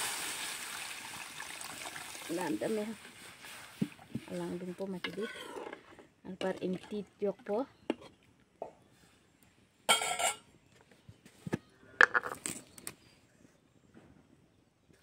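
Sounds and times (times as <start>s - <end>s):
spoon clanking on metal pan: 9.9s - 10.4s.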